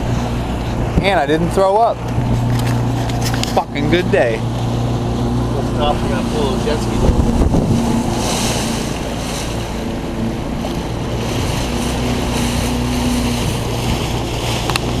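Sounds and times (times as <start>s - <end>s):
boat engine running: 0.0s - 15.0s
rushing water: 0.0s - 15.0s
wind on microphone: 4.4s - 15.0s.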